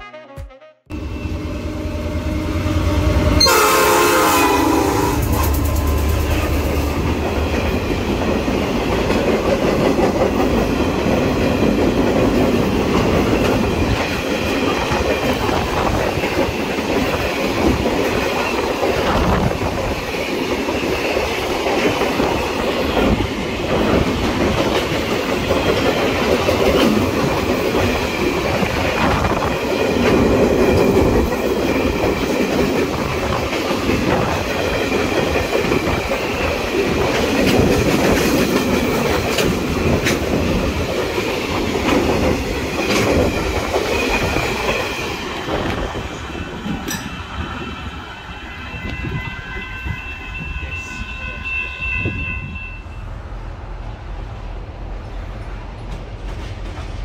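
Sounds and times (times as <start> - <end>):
train wheels clattering over rail joints: 20.4 - 46.0.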